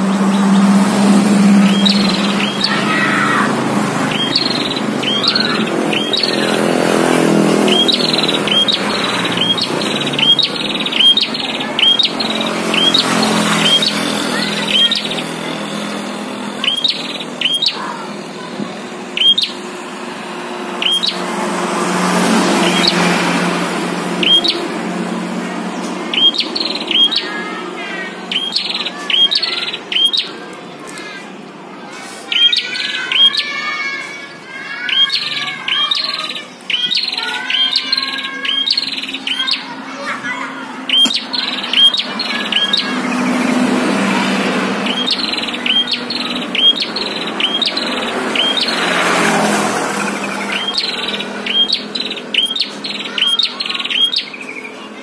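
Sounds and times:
soft warbling chirps: 0.0 - 19.6
sharp high bird chirps: 0.0 - 21.3, 22.1 - 24.7, 26.0 - 31.2, 32.3 - 40.2, 40.9 - 54.8.

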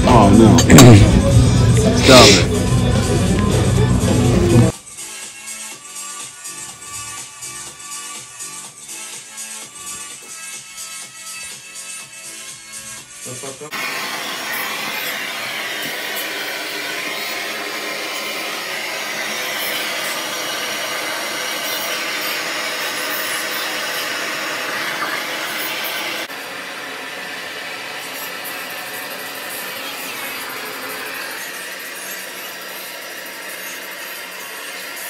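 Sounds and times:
gas torch hissing: 0.1 - 3.2, 13.2 - 34.6.

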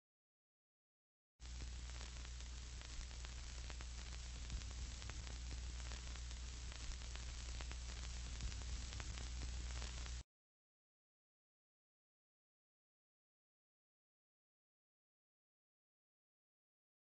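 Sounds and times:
crackling clicks: 1.4 - 10.2
electrical static hiss: 1.4 - 10.2
low mains hum: 1.4 - 10.2.

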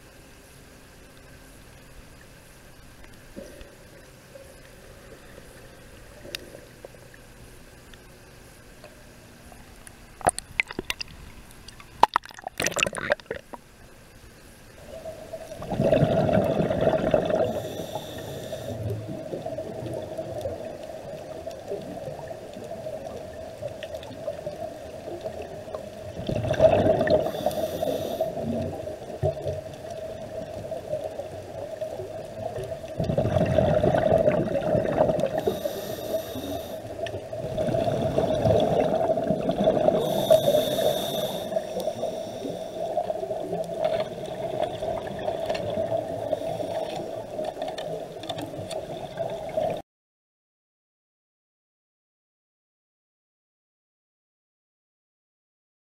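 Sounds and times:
steady hum: 0.0 - 47.4
exhaled bubbles rushing: 10.2 - 13.6, 14.8 - 17.6, 18.8 - 27.5, 28.3 - 35.6, 37.0 - 40.6, 42.8 - 46.4
water splashes: 10.2 - 13.6, 14.8 - 49.8
diver breathing through regulator: 17.2 - 18.9, 27.0 - 28.6, 35.3 - 37.0, 39.8 - 43.1, 46.2 - 47.2.

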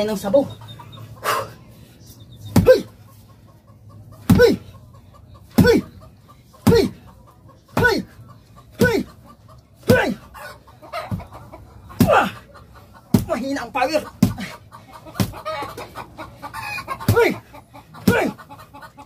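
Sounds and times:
hand chopping coconut: 4.3 - 4.6, 5.6 - 5.9, 6.6 - 7.0, 7.8 - 8.1, 8.8 - 9.1, 9.8 - 10.2, 12.0 - 12.3, 13.1 - 13.4, 14.2 - 14.5, 15.2 - 15.4, 17.1 - 17.4, 18.0 - 18.4.

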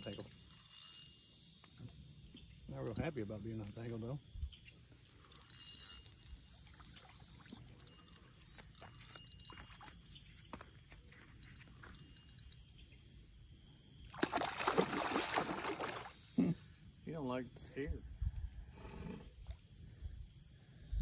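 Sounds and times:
faint small ticks: 0.0 - 13.5, 17.5 - 18.6
light water sounds: 4.8 - 12.3, 14.1 - 16.3
fish thrashing and splashing: 14.2 - 16.2.

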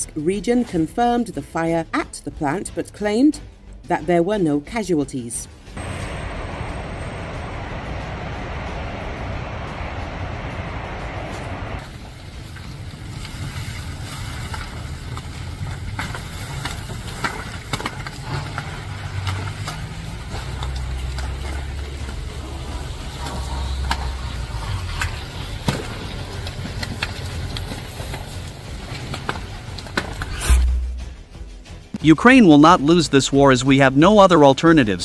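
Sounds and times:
large fire crackling: 5.8 - 31.0.

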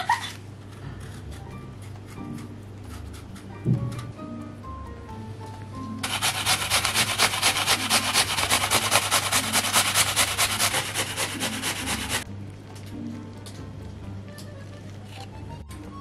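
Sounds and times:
apple grated on metal grater: 6.0 - 12.2.

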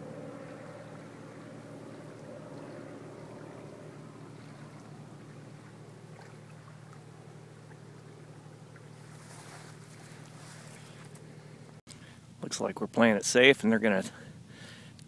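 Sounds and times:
distant vehicle engine running: 0.0 - 11.8.

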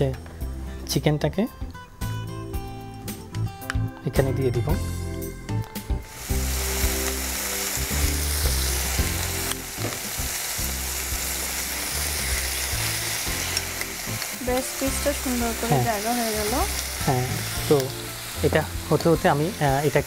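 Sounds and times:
chicken sizzling in a frying pan: 5.8 - 20.0.

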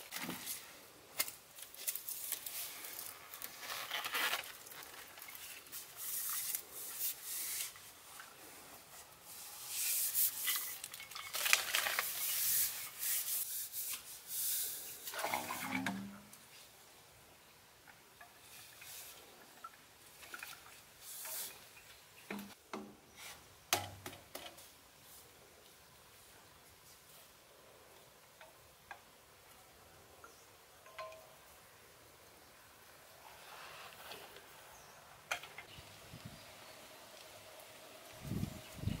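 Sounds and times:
leaves and grass rustling underfoot: 0.0 - 13.8
plastic pipe scraping and knocking: 15.1 - 16.3.

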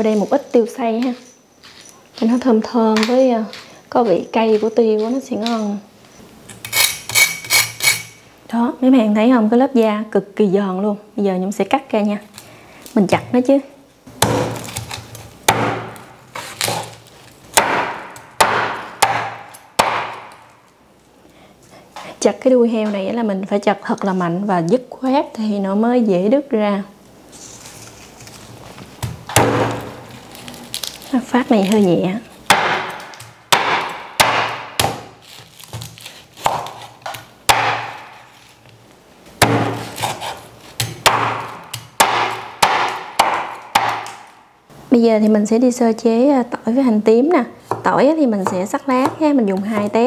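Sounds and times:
knife chopping crispy meat: 14.2 - 17.0, 32.5 - 38.2, 39.4 - 44.2.

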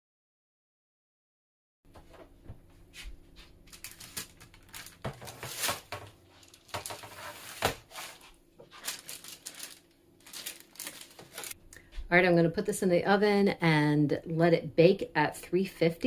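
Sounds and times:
parchment paper crinkling: 3.4 - 11.6.

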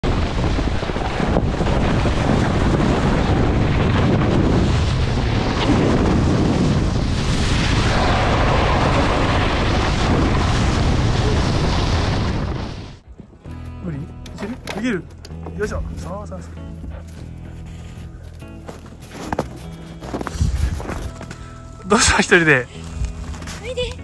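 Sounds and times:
wind buffeting microphone: 0.0 - 13.5, 19.9 - 21.2.

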